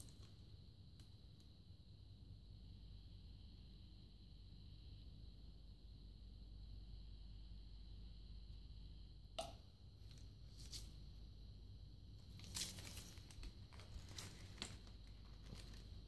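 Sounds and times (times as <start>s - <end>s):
paper rustling: 10.1s - 10.9s, 12.2s - 16.0s.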